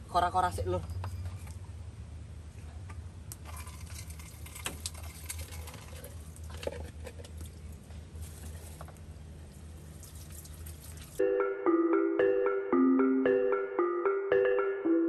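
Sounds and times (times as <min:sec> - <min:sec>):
water running and splashing: 0:09.8 - 0:11.2.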